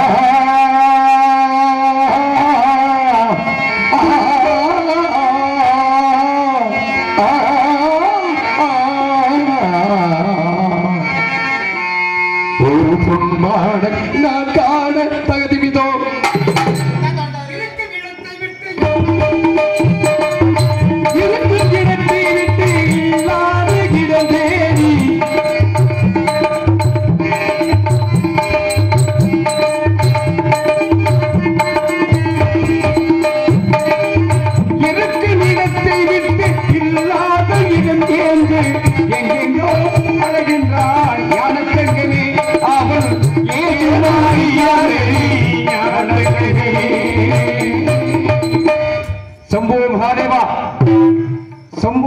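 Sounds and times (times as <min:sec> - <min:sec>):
wavering melody: 0:18.8 - 0:49.7.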